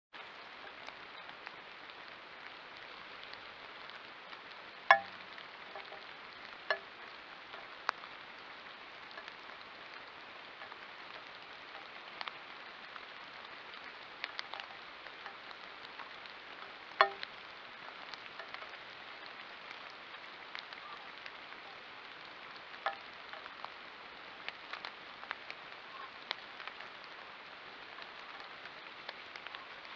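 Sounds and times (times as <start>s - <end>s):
light rain hiss: 0.2s - 29.9s
drips ticking on plastic housing: 4.9s - 8.0s, 9.1s - 12.4s, 14.2s - 17.4s, 18.0s - 18.8s, 22.7s - 23.7s.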